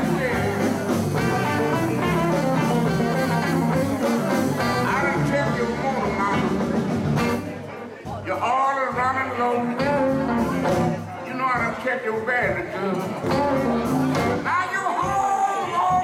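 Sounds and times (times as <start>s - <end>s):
person singing: 0.0s - 7.5s, 8.3s - 16.0s
electric guitar: 0.0s - 7.6s, 9.4s - 11.7s, 12.4s - 14.6s
bass guitar: 0.0s - 15.3s
drums: 0.0s - 16.0s
keyboard: 0.0s - 16.0s.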